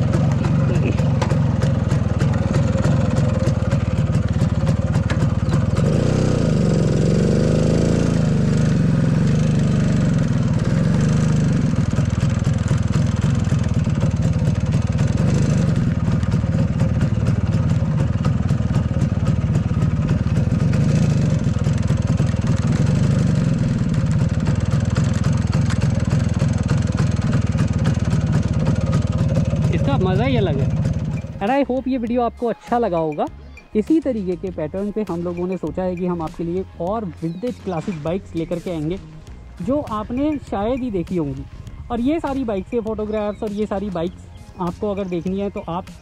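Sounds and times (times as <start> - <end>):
motorcycle engine revving: 0.0 - 46.0.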